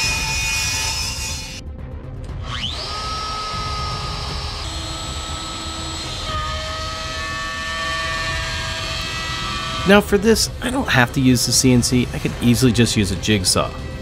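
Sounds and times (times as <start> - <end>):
router spindle whine: 0.0 - 1.6, 2.3 - 10.6.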